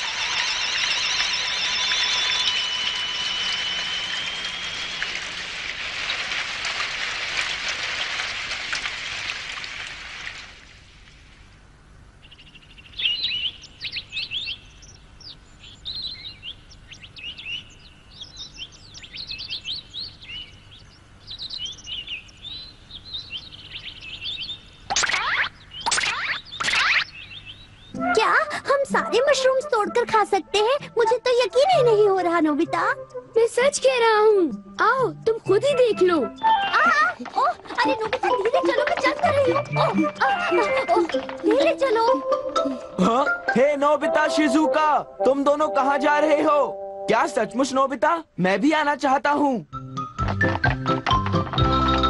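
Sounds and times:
loud steady hiss: 0.0 - 23.0
small birds chirping: 12.1 - 28.4.

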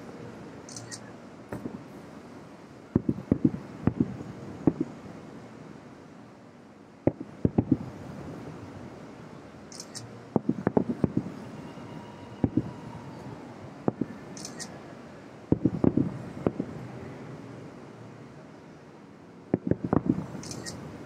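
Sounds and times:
distant fireworks bursting: 1.5 - 5.4, 7.0 - 9.0, 10.0 - 17.4, 19.4 - 21.0.

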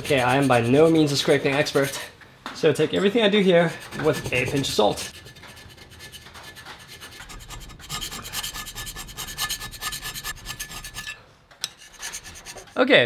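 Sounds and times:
hand scraper scraping cast iron: 0.0 - 2.1, 3.0 - 12.8.

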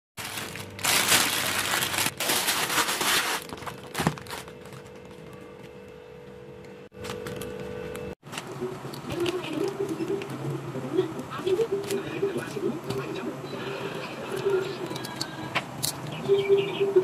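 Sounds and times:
plastic bag crinkling: 0.2 - 5.0.

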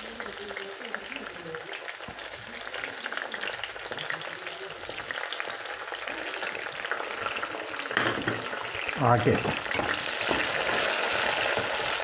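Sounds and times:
prawns sizzling in hot oil: 0.0 - 12.0.

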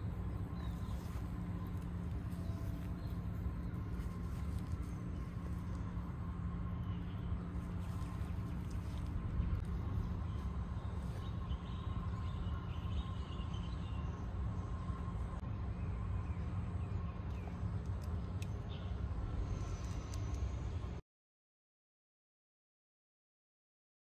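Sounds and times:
low rumble: 0.0 - 21.0
thin steady hum: 0.0 - 21.0.

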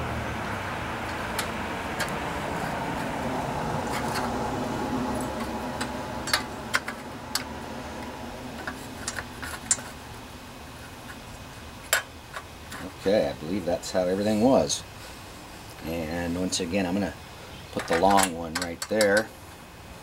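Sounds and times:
steady background hum: 0.0 - 20.0
light metal clicks and taps: 5.2 - 7.5, 17.7 - 19.3.

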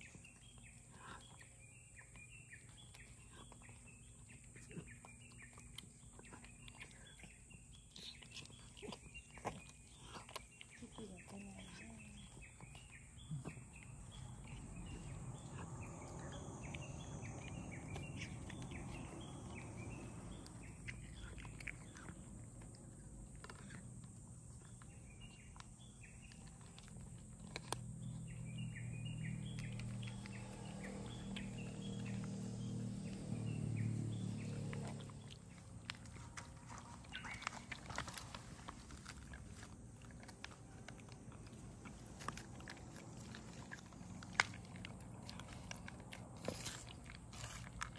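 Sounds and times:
cats chewing dry kibble: 0.0 - 47.9
scattered crunches and crackles: 0.0 - 47.9
small birds chirping: 0.0 - 47.9.

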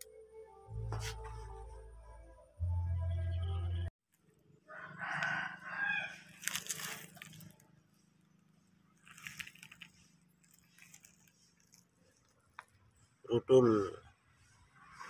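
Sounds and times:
rooster crowing: 4.6 - 6.6.

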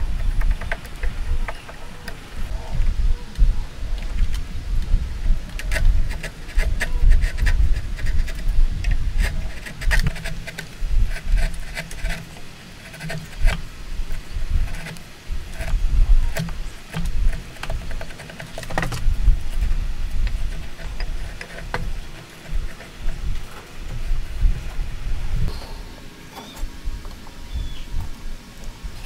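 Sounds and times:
light clicks of shavings: 0.0 - 25.5
chisel scraping wood: 5.5 - 25.5.

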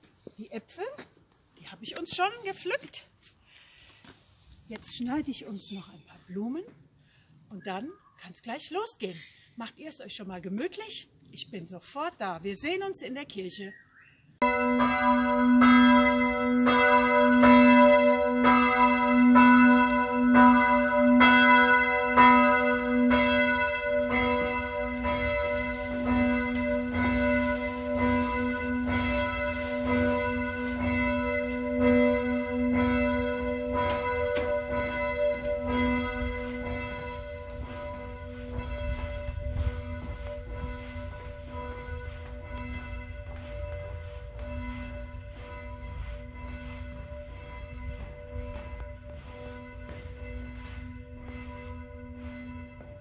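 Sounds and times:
church bells ringing: 14.4 - 53.0.

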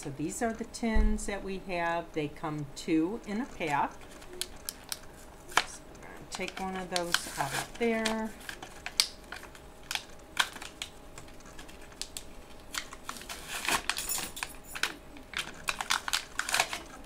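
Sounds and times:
packaging crinkling and rustling: 3.4 - 17.0.

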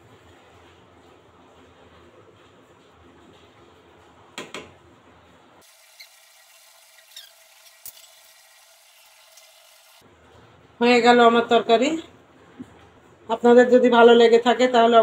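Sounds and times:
lentils simmering in a pan: 5.6 - 10.1.

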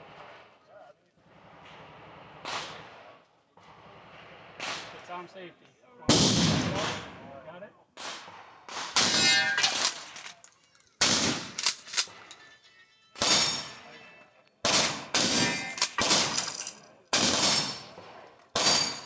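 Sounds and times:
shotgun shots with echo: 2.4 - 3.1, 4.5 - 5.0, 6.1 - 7.2, 8.0 - 10.2, 11.0 - 11.7, 13.2 - 13.9, 14.6 - 16.5, 17.1 - 19.0.

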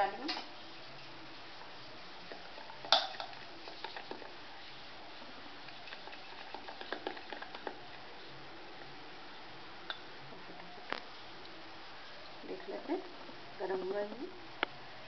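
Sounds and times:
hand beating batter in a bowl: 2.2 - 4.4, 5.6 - 8.1.

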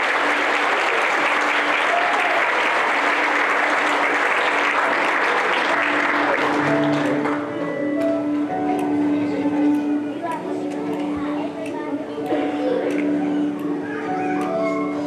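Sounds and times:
congregation applauding: 0.0 - 7.6
music: 3.2 - 15.0.

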